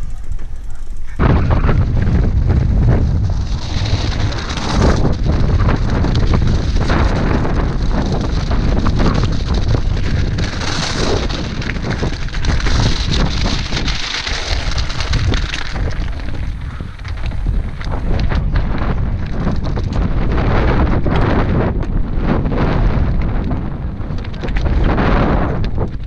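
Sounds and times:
tyres crunching on gravel: 0.0 - 20.3
bike rattling and clicking: 0.0 - 26.0
wind buffeting microphone: 0.0 - 26.0.

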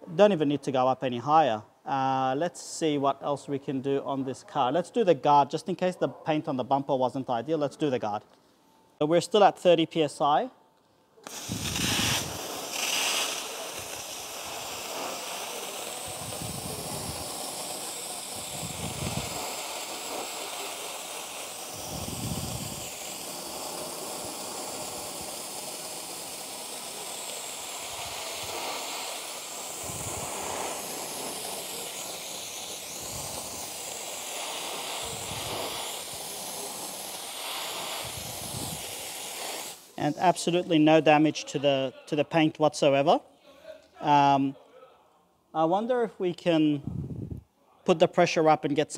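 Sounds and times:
dry ice blaster hissing: 11.2 - 40.9.

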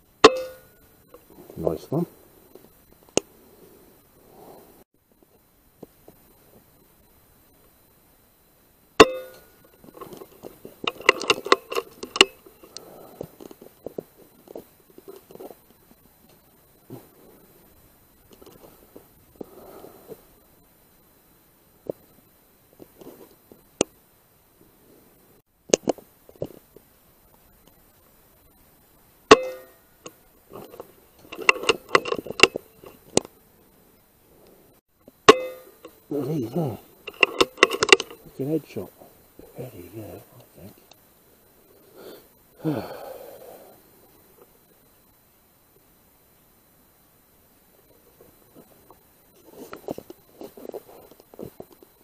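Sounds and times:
rifle shot with metallic ring: 0.2 - 0.8, 9.0 - 9.6, 29.3 - 29.8, 35.3 - 35.9
clicks and rattles: 9.0 - 12.8, 29.3 - 33.3, 37.0 - 38.3
faint ticks: 9.2 - 21.2
rifle action clicks: 37.1 - 38.2.

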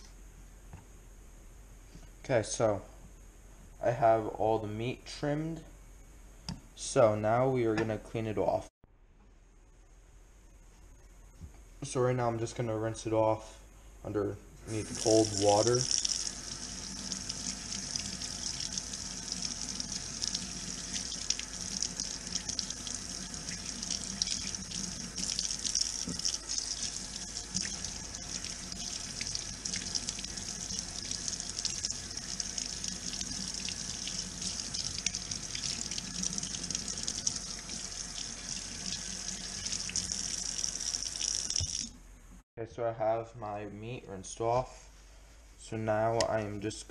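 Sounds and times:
tap water running into sink: 14.8 - 41.9.

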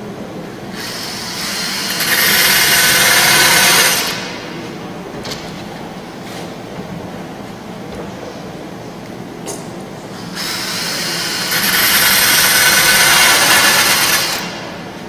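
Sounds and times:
cordless drill drilling into tube: 0.8 - 4.3, 10.3 - 14.6.

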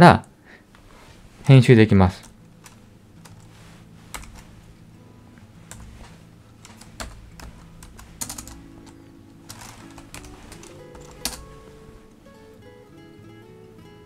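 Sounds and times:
faint background music: 0.0 - 14.0
keyboard keystrokes: 6.7 - 11.6.

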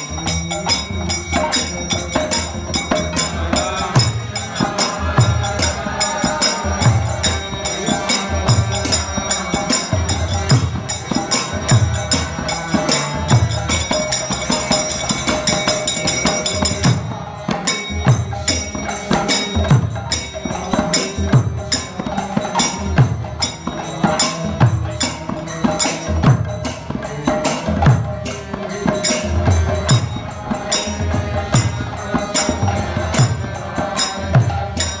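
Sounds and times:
jingling hand percussion: 0.0 - 35.0
man chanting: 0.0 - 35.0.

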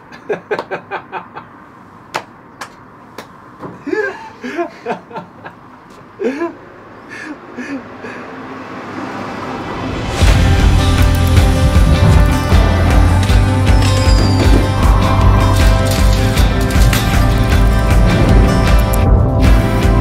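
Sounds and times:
man and woman giggling: 0.0 - 1.6, 3.8 - 6.6.

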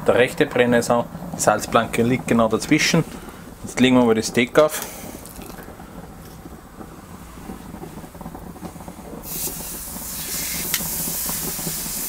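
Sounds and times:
gas grill burners rushing: 0.0 - 12.0
steak sizzling: 4.4 - 12.0.

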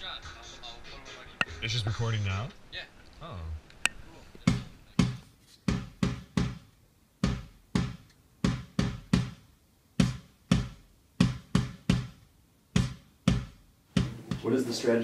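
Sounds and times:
drum hits: 12.8 - 14.6.

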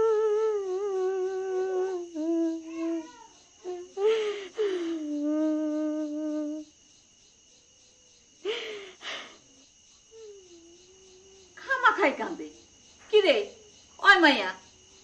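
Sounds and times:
woman crying: 0.0 - 6.6, 8.5 - 9.4.

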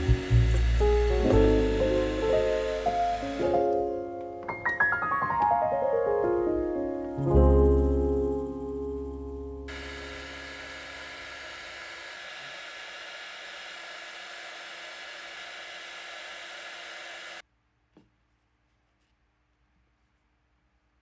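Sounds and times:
heat gun blowing: 0.0 - 3.9, 9.7 - 17.4.

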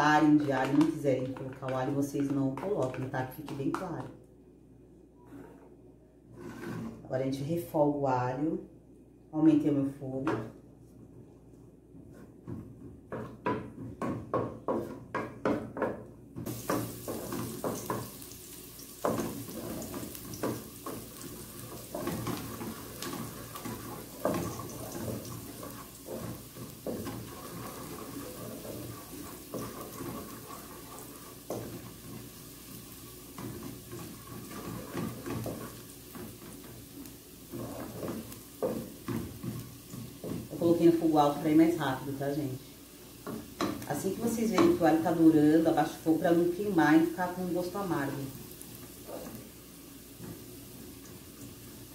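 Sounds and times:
wooden spoon scraping a pot: 6.3 - 7.1, 18.8 - 41.1
garlic sizzling in oil: 16.4 - 51.9.

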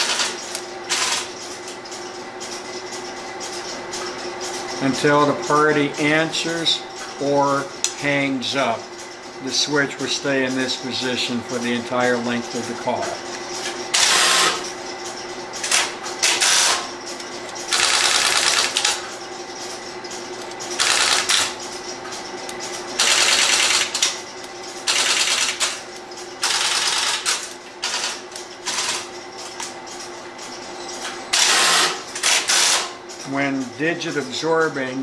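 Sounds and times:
rapid mechanical clicking: 13.9 - 30.1.

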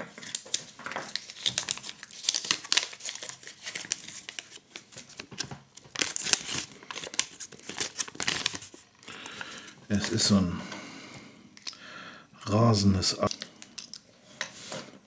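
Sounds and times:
paper crinkling and rustling: 0.0 - 10.4.

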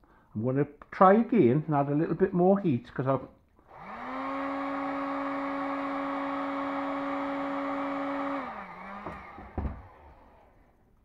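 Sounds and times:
heat gun blowing: 3.6 - 10.8
fan winding down: 3.7 - 10.8.

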